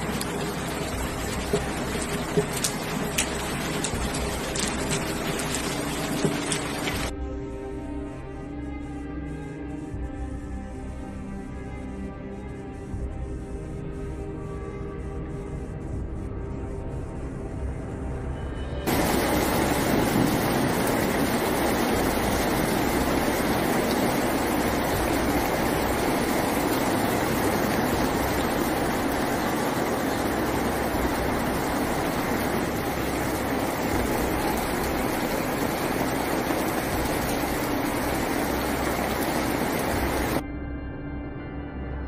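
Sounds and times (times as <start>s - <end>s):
water rushing: 0.0s - 7.1s, 18.9s - 40.4s
music: 0.0s - 42.0s.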